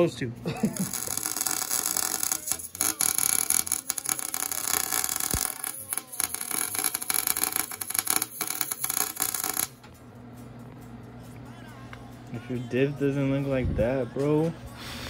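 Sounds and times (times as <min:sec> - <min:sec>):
welder arc crackling: 0:00.7 - 0:09.9.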